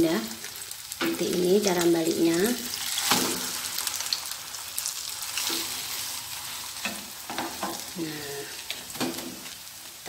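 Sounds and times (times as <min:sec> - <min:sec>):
oil sizzling in a frying pan: 0:00.0 - 0:10.0.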